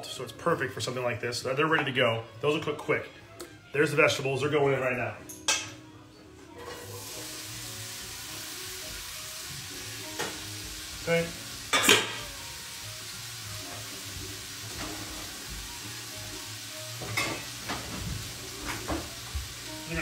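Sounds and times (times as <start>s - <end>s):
vegetables sizzling in a pan: 6.6s - 20.0s.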